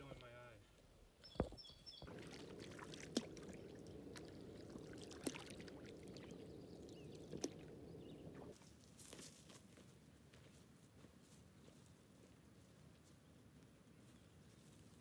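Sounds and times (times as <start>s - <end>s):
paddle strokes swishing and dripping: 2.0s - 8.6s
water wash: 2.0s - 8.6s.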